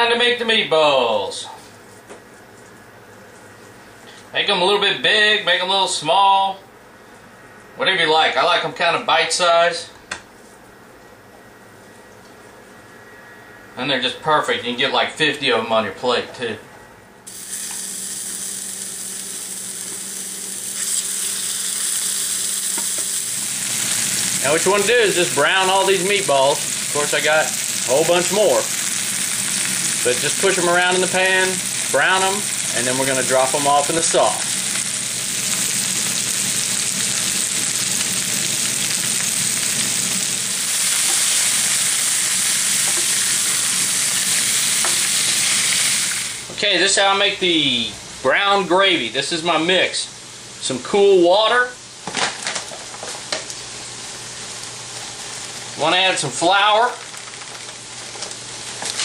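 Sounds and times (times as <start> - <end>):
meatballs sizzling in hot fat: 17.3 - 46.6, 51.9 - 59.0.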